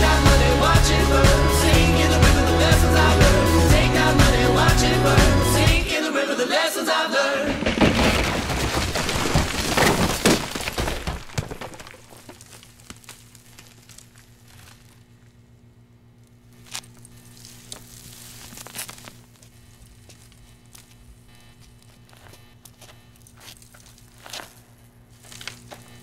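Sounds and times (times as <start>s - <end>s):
concrete floor crashing: 7.4s - 13.0s
rubble crackling: 7.4s - 15.5s, 16.4s - 26.0s
low steady hum: 11.8s - 26.0s.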